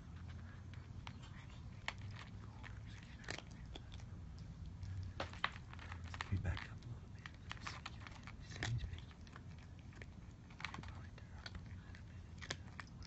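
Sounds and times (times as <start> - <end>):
cat chewing food: 0.0 - 13.0.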